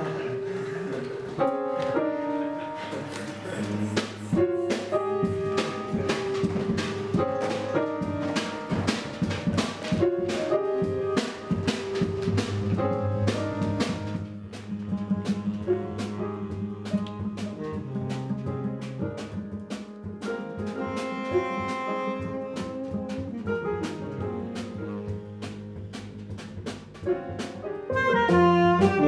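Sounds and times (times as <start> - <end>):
jazz band playing: 0.0 - 29.0
drum and cymbal hits: 3.8 - 29.0
saxophone melody: 10.2 - 19.5, 20.4 - 26.3, 27.8 - 29.0
upright bass line: 11.6 - 19.6, 22.2 - 29.0.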